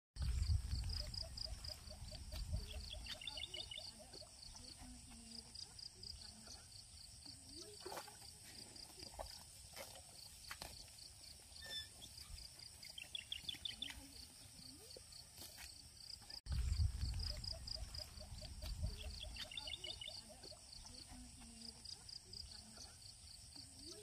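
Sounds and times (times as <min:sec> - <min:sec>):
high repeating animal chirp: 0:00.2 - 0:04.8, 0:11.6 - 0:14.1, 0:17.0 - 0:21.0.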